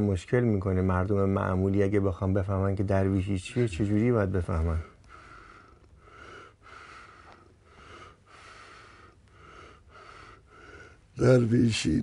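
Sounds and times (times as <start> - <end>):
man breathing wheezily: 5.1 - 11.1.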